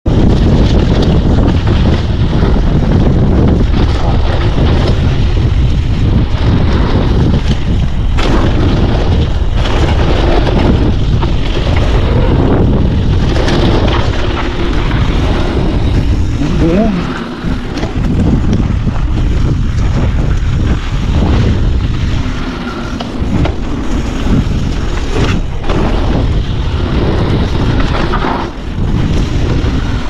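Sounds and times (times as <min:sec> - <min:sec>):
bike tyre noise and rattling: 0:00.0 - 0:30.0
wind buffeting microphone: 0:00.0 - 0:30.0.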